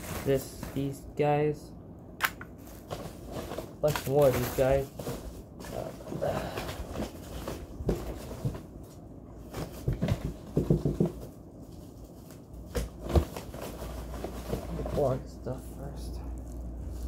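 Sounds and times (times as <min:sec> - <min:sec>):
plastic wrapping crinkling: 0:02.5 - 0:08.7, 0:16.3 - 0:17.0
knocks against cardboard box: 0:09.5 - 0:11.3.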